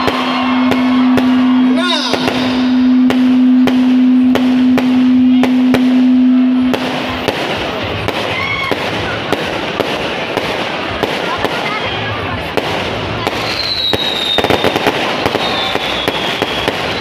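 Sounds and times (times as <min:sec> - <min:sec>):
loud steady low tone: 0:00.0 - 0:08.1
fireworks bangs: 0:00.0 - 0:17.0.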